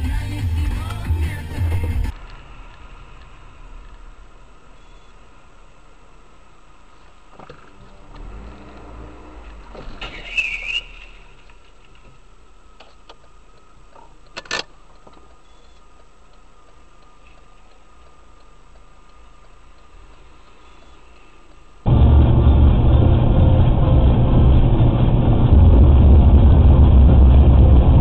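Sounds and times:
car road hum: 0:00.0 - 0:28.0
loud squeal: 0:10.0 - 0:11.4.

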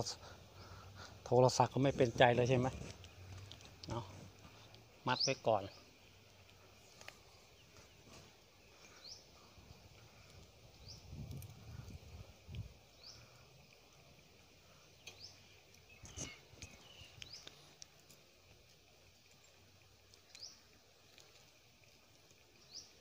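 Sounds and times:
bird chirping: 0:06.8 - 0:09.6, 0:14.8 - 0:17.7.

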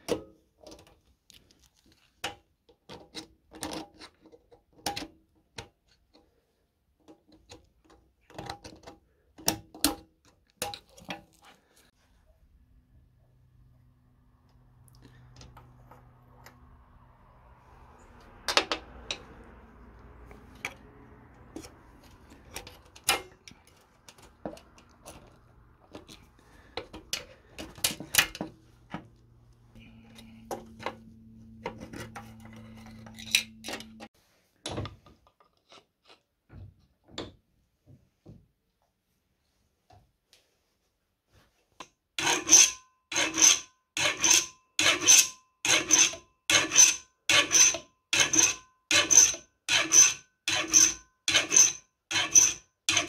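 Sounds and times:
file rasping on metal: 0:42.2 - 0:53.0.

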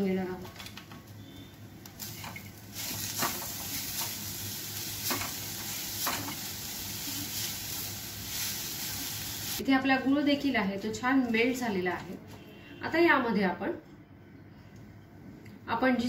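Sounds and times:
sizzling in a hot pan: 0:02.0 - 0:09.6.

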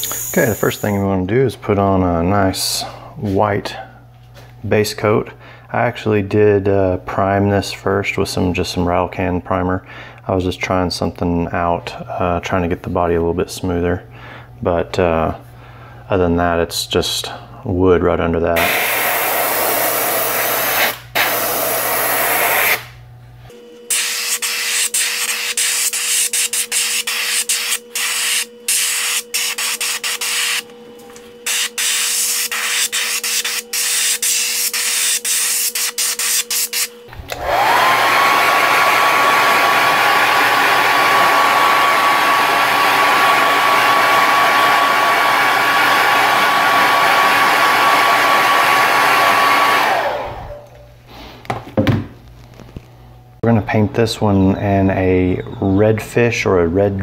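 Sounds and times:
airbrush spraying: 0:00.0 - 0:01.0, 0:18.6 - 0:22.9, 0:23.9 - 0:30.6, 0:31.4 - 0:36.9
hair dryer running: 0:00.0 - 0:01.0, 0:18.6 - 0:36.4, 0:37.0 - 0:50.8
steady low hum: 0:00.0 - 0:24.1.

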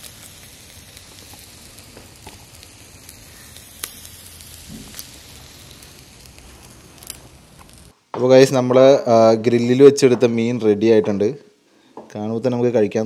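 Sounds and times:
fish sizzling on a grill: 0:00.0 - 0:07.9
sharp pops: 0:00.0 - 0:08.0.

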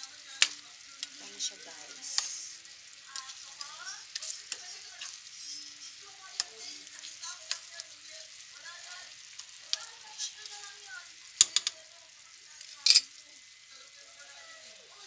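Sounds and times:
spoon scraping stew in pan: 0:03.1 - 0:08.0
spoon knocking against pan: 0:11.4 - 0:11.8.

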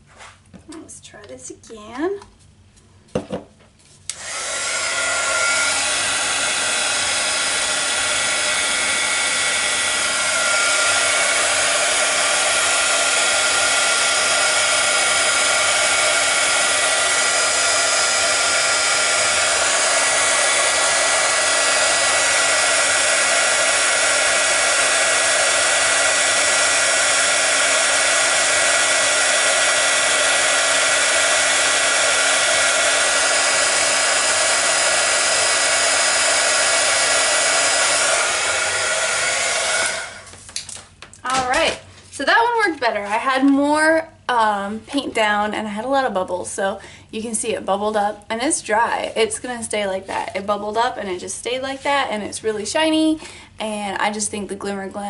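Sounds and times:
heat gun fan whirring: 0:03.0 - 0:45.5.

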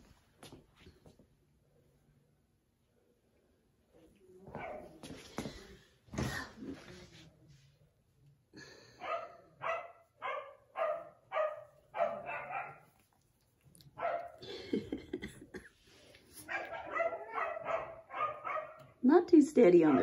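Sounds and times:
puppy yapping: 0:09.0 - 0:12.9, 0:13.9 - 0:14.4, 0:16.4 - 0:18.9.

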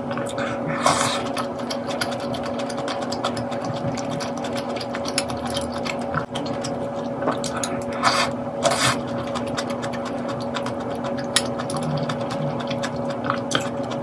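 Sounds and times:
steady hum: 0:00.0 - 0:14.0
person slurping soup: 0:00.2 - 0:01.6, 0:07.4 - 0:09.2.

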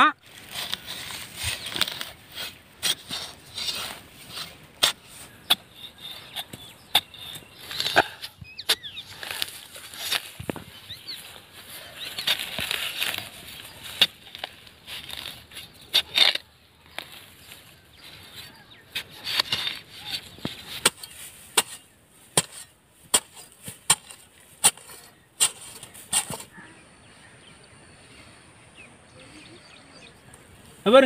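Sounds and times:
scraping of loose earth: 0:00.2 - 0:28.4
digging bar knocking into soil: 0:18.3 - 0:26.5.

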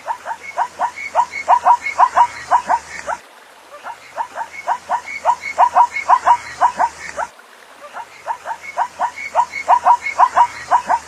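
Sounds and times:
zebra barking yips: 0:00.0 - 0:03.2, 0:03.8 - 0:11.0.

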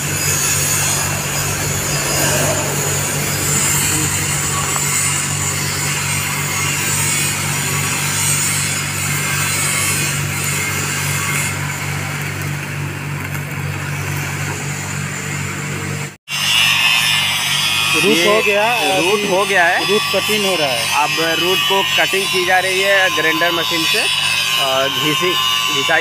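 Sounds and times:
low engine hum: 0:00.0 - 0:06.1
angle grinder grinding metal: 0:00.0 - 0:12.4, 0:16.3 - 0:26.0.

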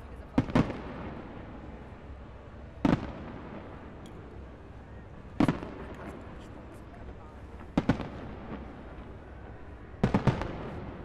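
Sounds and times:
fireworks bursting with booms: 0:00.3 - 0:01.6, 0:02.8 - 0:04.0, 0:05.4 - 0:06.3, 0:07.6 - 0:09.2, 0:10.0 - 0:11.0.

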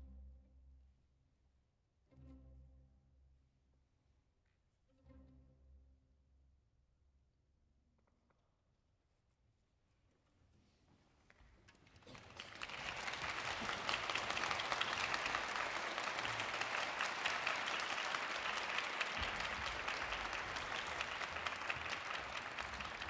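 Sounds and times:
audience applauding: 0:11.7 - 0:23.0.

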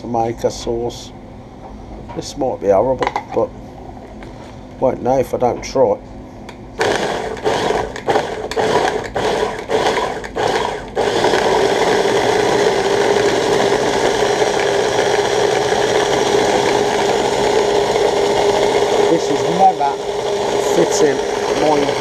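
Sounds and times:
electric food chopper whirring: 0:06.8 - 0:22.0.

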